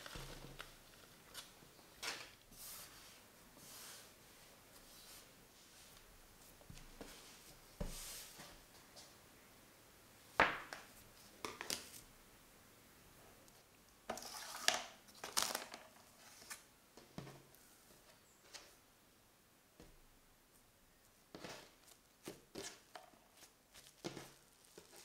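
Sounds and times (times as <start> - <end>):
cling film crinkling and tearing: 0.0 - 1.6.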